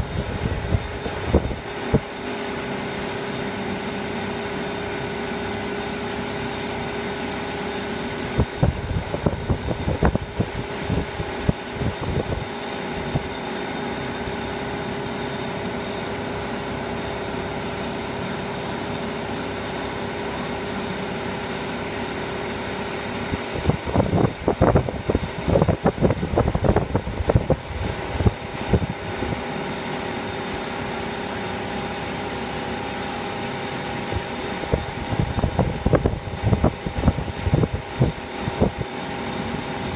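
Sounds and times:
spray gun hissing: 0:00.0 - 0:01.3, 0:05.4 - 0:13.0, 0:17.6 - 0:28.8, 0:29.6 - 0:39.9
wind buffeting microphone: 0:00.0 - 0:02.1, 0:08.3 - 0:12.4, 0:23.3 - 0:29.4, 0:34.1 - 0:38.8
extraction fans humming: 0:00.0 - 0:39.9.

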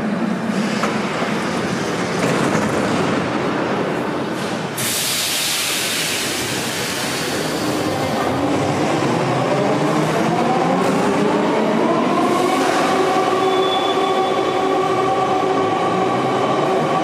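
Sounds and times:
train air hiss: 0:04.4 - 0:08.1.

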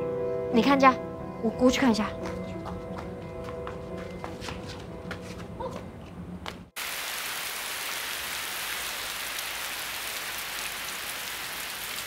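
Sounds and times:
steady rain: 0:06.8 - 0:12.0.

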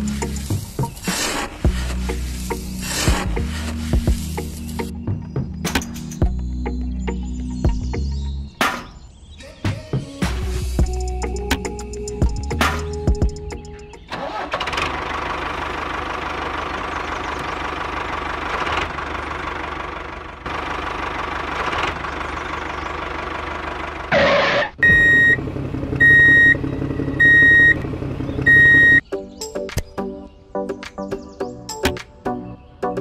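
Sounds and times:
tractor engine running: 0:00.0 - 0:05.0, 0:10.8 - 0:29.0
reversing beeps: 0:24.8 - 0:25.4, 0:26.0 - 0:26.6, 0:27.2 - 0:27.8, 0:28.4 - 0:29.0.

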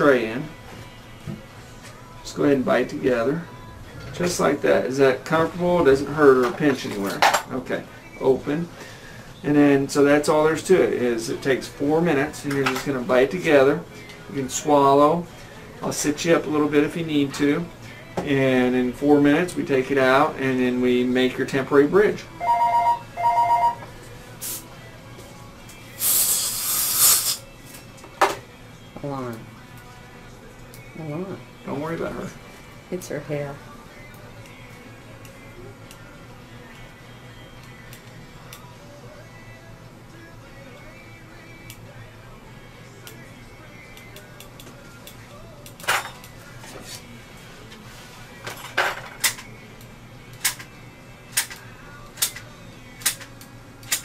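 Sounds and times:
two-tone electronic ring: 0:22.4 - 0:23.8
short air puffs: 0:24.4 - 0:24.7, 0:26.0 - 0:27.4
air syringe hissing: 0:25.9 - 0:27.5.

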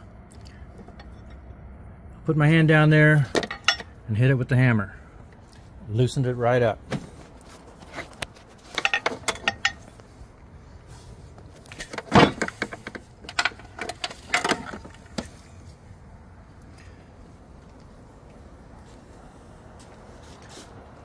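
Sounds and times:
metallic clicks and clinks: 0:08.7 - 0:09.9.

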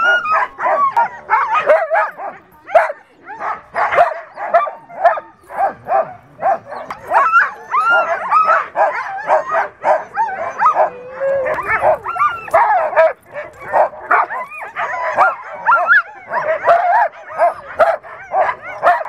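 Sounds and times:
dogs whining: 0:00.0 - 0:01.7, 0:03.8 - 0:19.0
dogs barking and yelping: 0:00.0 - 0:19.0.

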